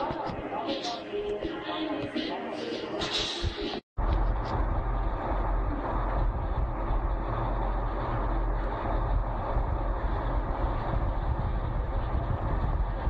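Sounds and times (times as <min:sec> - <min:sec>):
truck diesel engine rumbling: 0:04.0 - 0:13.0.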